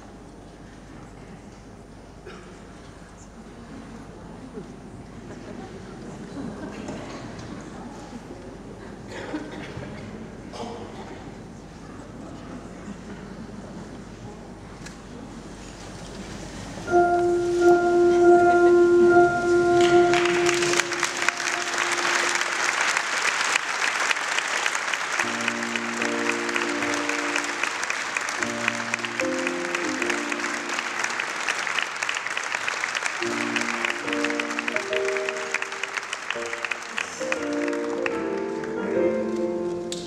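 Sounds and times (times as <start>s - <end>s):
music with held note and chords: 16.9s - 22.5s
audience applauding: 19.7s - 40.0s.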